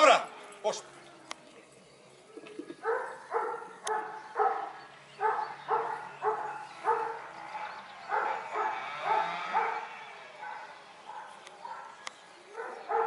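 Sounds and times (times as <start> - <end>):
dog barking: 2.8 - 7.2, 8.1 - 9.8, 10.4 - 12.0, 12.6 - 13.0.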